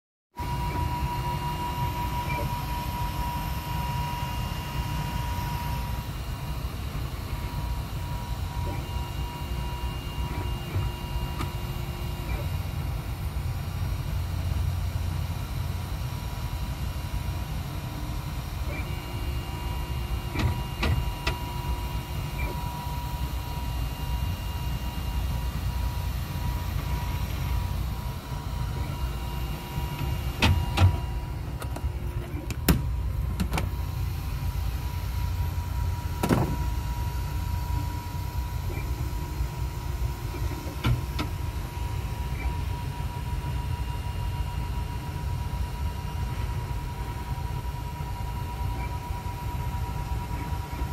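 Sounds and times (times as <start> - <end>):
printer motors humming and whining: 0.4 - 50.9
print head clicking: 18.6 - 22.7, 26.4 - 34.5.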